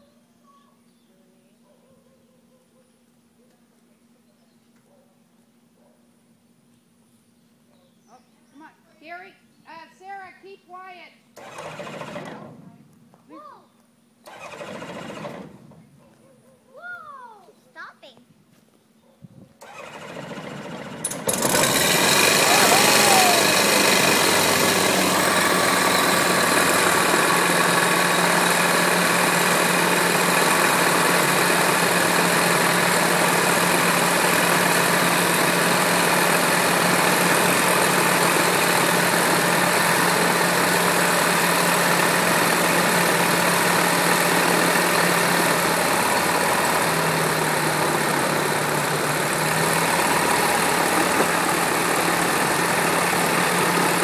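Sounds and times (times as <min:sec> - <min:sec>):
aircraft engine idling: 0:19.6 - 0:54.0.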